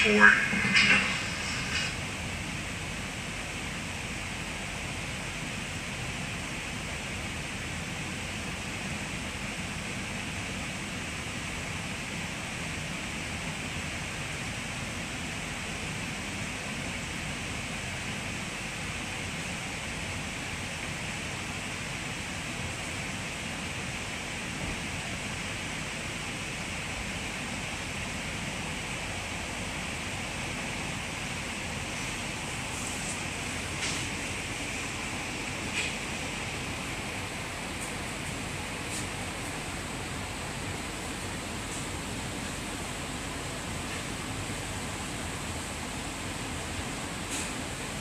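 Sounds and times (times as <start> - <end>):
train carriage hiss: 0.0 - 6.8, 21.1 - 48.0.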